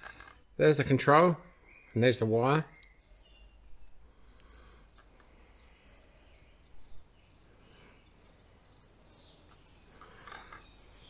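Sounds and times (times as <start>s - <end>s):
plastic connectors clicking and rustling: 0.0s - 0.5s, 9.5s - 10.9s
faint bird chirps: 0.0s - 11.0s.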